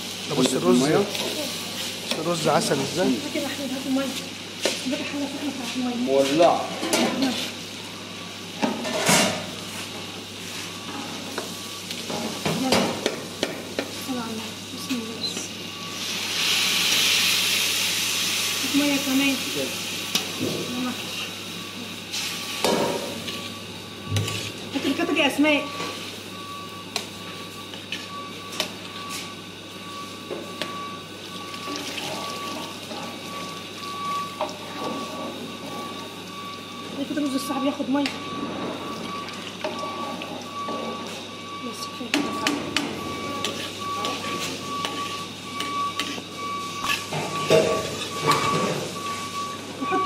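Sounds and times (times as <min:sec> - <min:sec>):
rice sizzling in pan: 0:00.0 - 0:41.6, 0:43.0 - 0:49.8
spoon scraping pan: 0:43.3 - 0:48.1.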